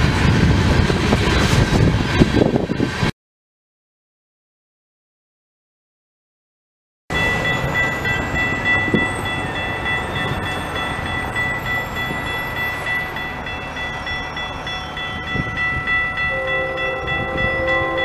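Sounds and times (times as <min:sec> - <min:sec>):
crossing warning bell ringing: 0:07.1 - 0:18.0
road traffic rumbling: 0:07.1 - 0:18.0.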